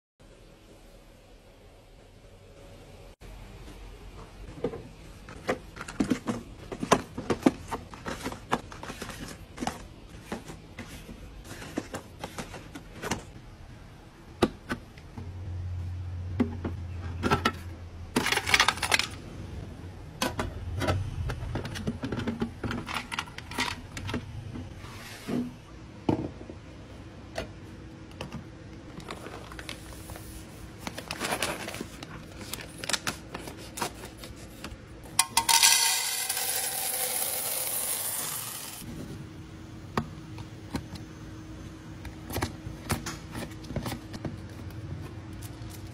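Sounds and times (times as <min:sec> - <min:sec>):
capsules clicking into plastic drawers: 0:05.3 - 0:13.4, 0:16.4 - 0:19.2, 0:20.1 - 0:24.3.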